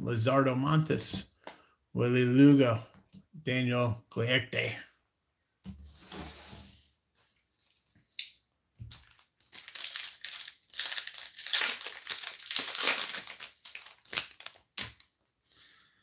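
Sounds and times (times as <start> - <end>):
foil wrapper crinkling: 8.9 - 15.1.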